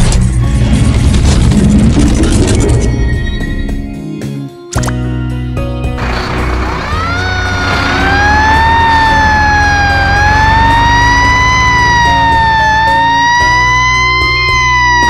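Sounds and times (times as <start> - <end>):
background music: 0.0 - 15.0
fire truck siren wailing: 6.0 - 15.0.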